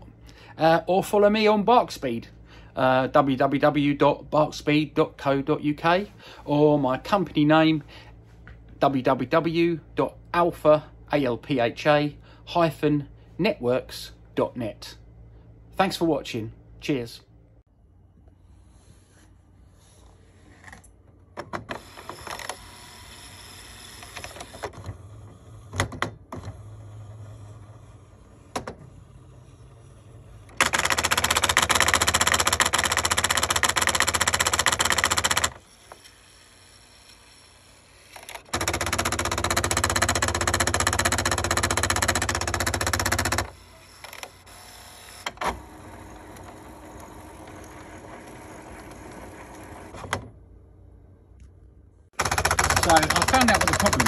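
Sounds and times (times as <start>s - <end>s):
printer motor running: 21.7s - 50.2s, 52.2s - 54.0s
printer mechanism rapid clattering: 30.6s - 35.6s, 38.2s - 44.3s, 52.2s - 54.0s.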